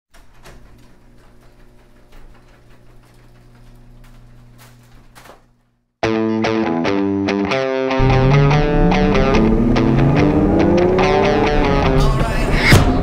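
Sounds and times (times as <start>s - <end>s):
distorted electric guitar music: 6.0s - 13.0s
low hum: 8.0s - 12.9s.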